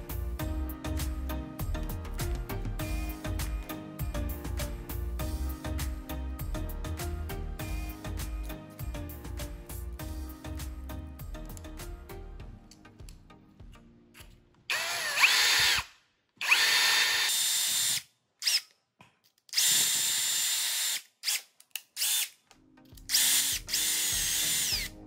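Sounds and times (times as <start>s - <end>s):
cordless drill whining: 14.7s - 18.6s, 19.5s - 21.4s, 22.0s - 22.3s, 23.1s - 25.0s.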